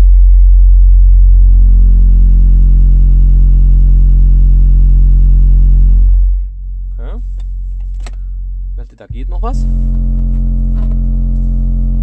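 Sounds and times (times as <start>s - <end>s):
subwoofer deep test tone hum: 0.0s - 12.0s
buzzing overtones: 4.0s - 12.0s.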